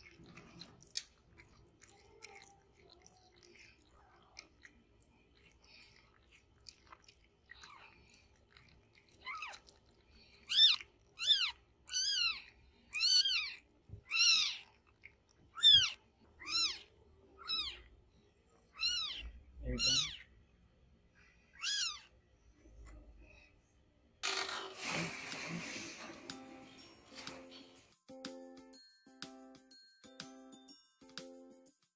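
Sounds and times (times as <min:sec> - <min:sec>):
kitten mewing: 0:10.4 - 0:14.8, 0:15.6 - 0:17.9, 0:18.7 - 0:20.3, 0:21.6 - 0:22.1.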